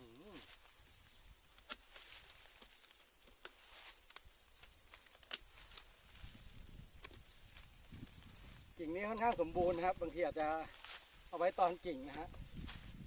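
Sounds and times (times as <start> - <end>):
leaves rustling: 0.0 - 13.0
pruning shears snipping: 1.4 - 6.3, 9.0 - 11.2, 12.0 - 12.9.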